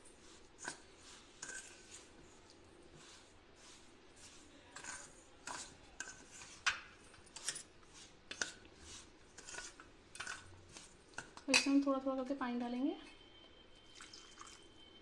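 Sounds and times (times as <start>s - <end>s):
spoon scraping a steel bowl: 0.2s - 2.3s, 2.9s - 11.9s.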